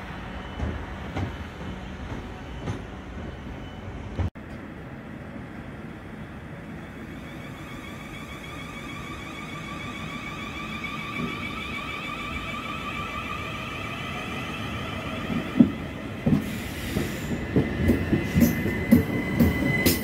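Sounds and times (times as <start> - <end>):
electric train whine: 0.0 - 20.0
train wheels thudding over rail joints: 15.4 - 20.0.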